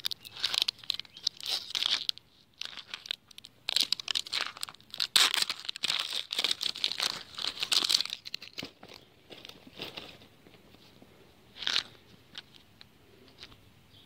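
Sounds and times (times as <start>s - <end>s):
plastic shrink-wrap crinkling and tearing: 0.0s - 8.8s.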